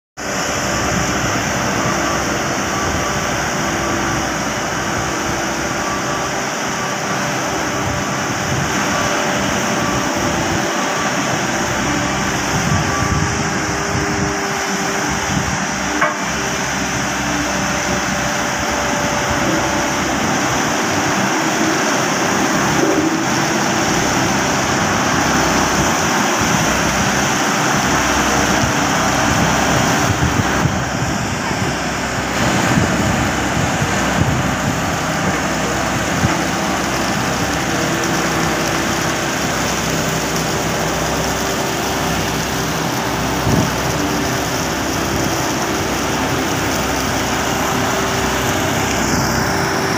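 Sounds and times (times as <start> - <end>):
road roller diesel engine: 0.2 - 49.9
water splashing onto stones: 32.0 - 49.9.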